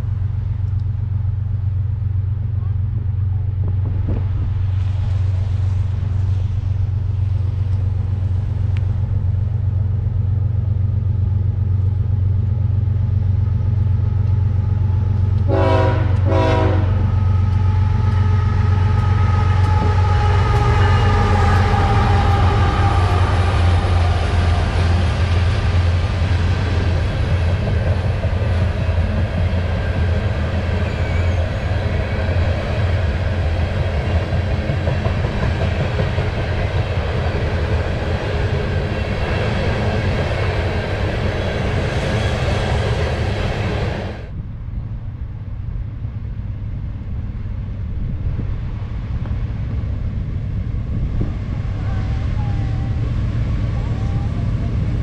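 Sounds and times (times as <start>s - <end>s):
freight cars rolling on rails: 0.0s - 44.4s
diesel locomotives passing: 0.0s - 55.0s
train horn blasts: 15.4s - 24.0s.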